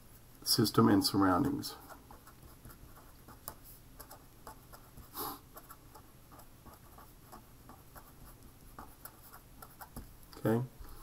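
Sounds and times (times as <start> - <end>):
pen scratching on paper: 1.8 - 10.1.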